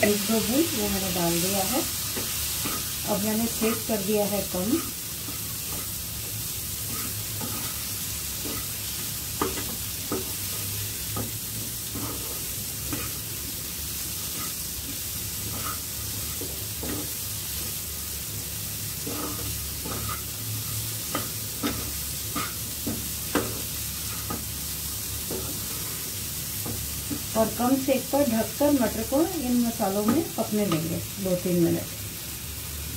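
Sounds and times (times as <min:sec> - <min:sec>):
soft sizzle: 0:00.0 - 0:32.9
spatula scraping a frying pan: 0:01.0 - 0:17.9, 0:18.6 - 0:27.4.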